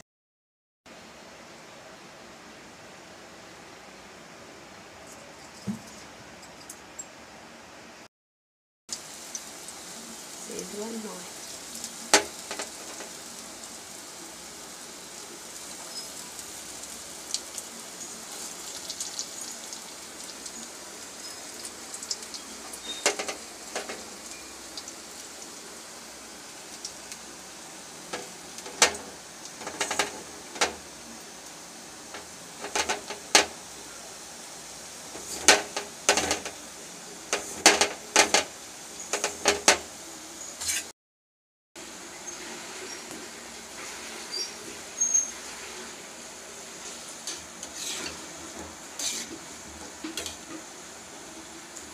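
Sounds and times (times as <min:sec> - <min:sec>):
oil crackling and popping: 0:08.9 - 0:10.7, 0:11.3 - 0:33.9, 0:35.0 - 0:39.9
fritters deep-frying in oil: 0:08.9 - 0:40.9, 0:41.8 - 0:51.9.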